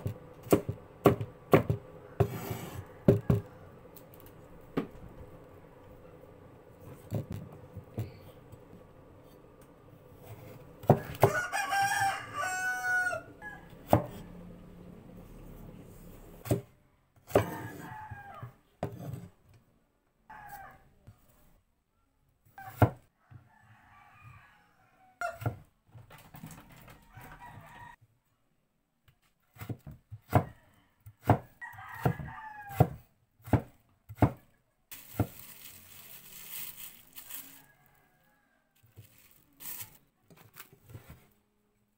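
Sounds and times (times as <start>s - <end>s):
knife chopping on wooden board: 0.0s - 3.4s, 16.4s - 16.7s, 29.6s - 30.5s, 31.2s - 34.4s
rooster crowing: 2.0s - 3.7s, 10.8s - 14.3s, 17.4s - 18.6s, 20.3s - 20.9s, 23.2s - 25.4s, 26.9s - 28.0s, 30.4s - 33.0s, 36.9s - 39.3s.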